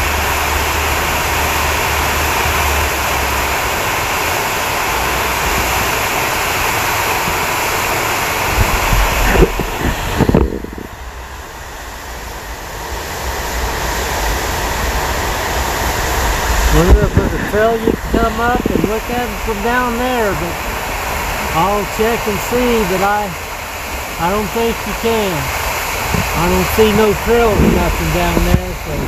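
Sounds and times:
waterfall rushing: 0.0s - 29.0s
wind buffeting microphone: 4.9s - 21.8s, 25.6s - 29.0s.

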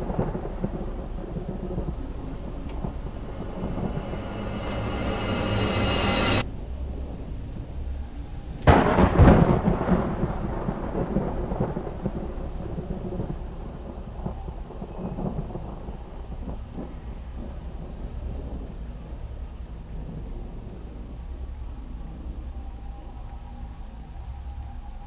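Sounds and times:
thunderclap rolling: 0.0s - 17.6s
low rumble and hiss: 0.0s - 25.0s.

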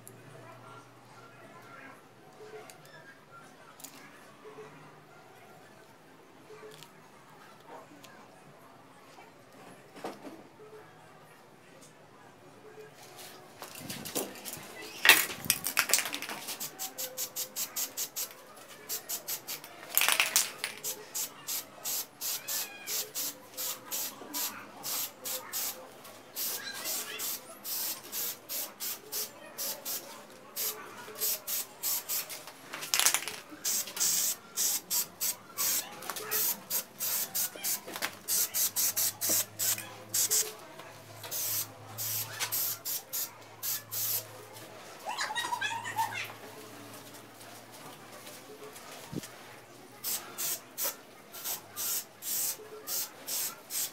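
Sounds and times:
spray can shaken with rattling ball: 13.7s - 40.5s, 41.3s - 44.3s, 50.0s - 53.9s.

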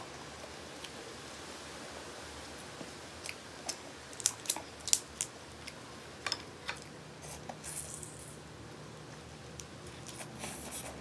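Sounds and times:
shellfish shell cracking: 4.1s - 5.3s.

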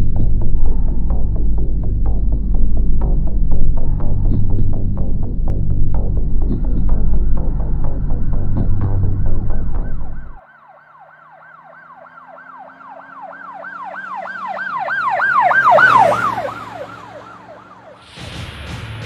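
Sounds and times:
faint engine hum: 0.0s - 10.4s
emergency vehicle siren wailing: 8.8s - 18.1s.

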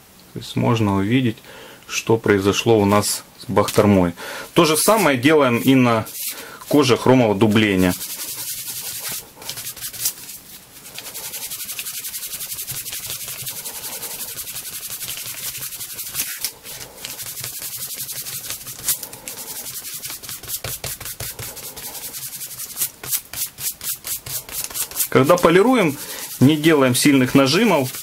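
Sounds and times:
cloth pad rubbing leather: 7.6s - 28.0s.

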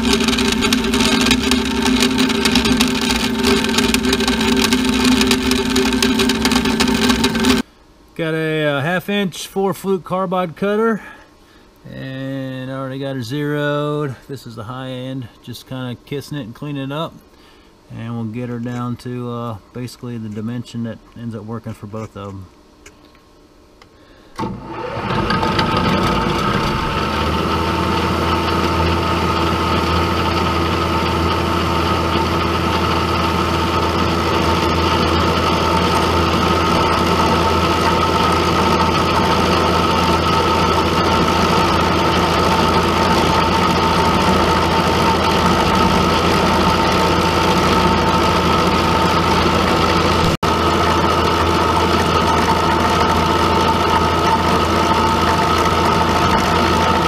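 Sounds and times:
milling machine whining: 0.0s - 7.7s, 24.4s - 57.0s.

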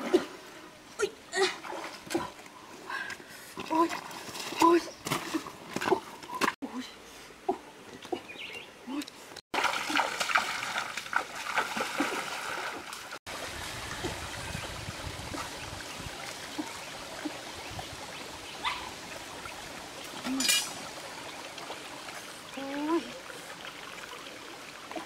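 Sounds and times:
water trickling over stones: 8.9s - 25.0s
water splashing in a rocky stream: 9.2s - 25.0s.

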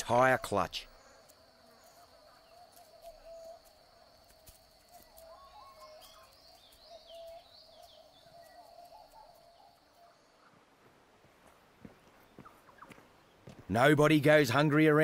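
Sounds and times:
high insect whine: 0.0s - 10.3s
birds warbling and chirping: 0.0s - 10.6s.

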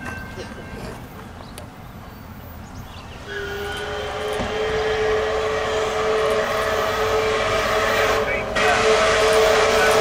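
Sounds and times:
steam locomotive chime whistle: 3.3s - 10.0s.

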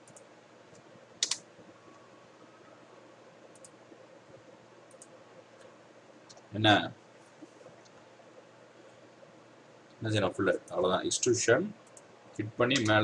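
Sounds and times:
keyboard and mouse clicks: 0.0s - 1.5s, 3.5s - 3.8s, 4.9s - 5.7s, 11.8s - 12.1s, 12.7s - 13.0s
low room hiss: 0.0s - 13.0s.

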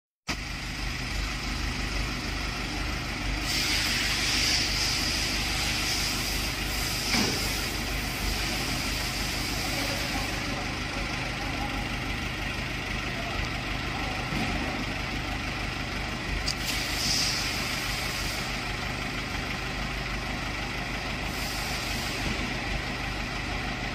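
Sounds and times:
truck engine running: 0.3s - 23.9s
hydraulic hiss: 3.4s - 10.5s, 16.5s - 18.6s, 21.2s - 22.5s.

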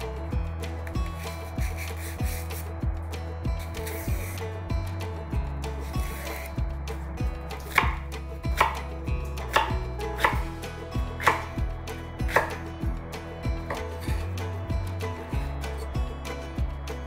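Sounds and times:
knife slicing onto wooden board: 6.0s - 6.5s, 7.6s - 8.0s.

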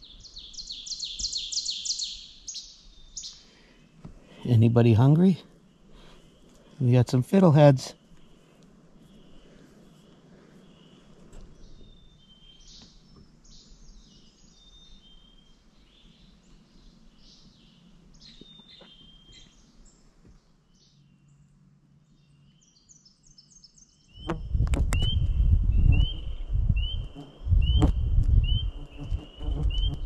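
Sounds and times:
bird repeating rising chirp: 0.0s - 3.5s, 22.2s - 30.0s
birds singing and chirping: 0.0s - 30.0s.

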